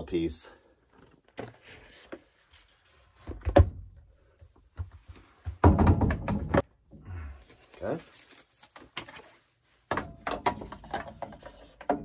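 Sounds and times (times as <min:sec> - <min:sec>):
plastic knocking and scraping: 0:09.9 - 0:12.0.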